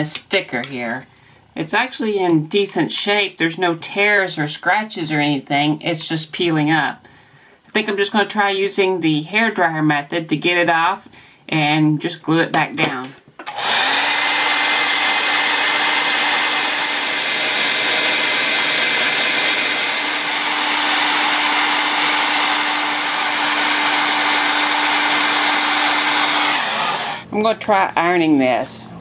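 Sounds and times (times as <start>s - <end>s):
hair dryer running: 13.4s - 27.3s.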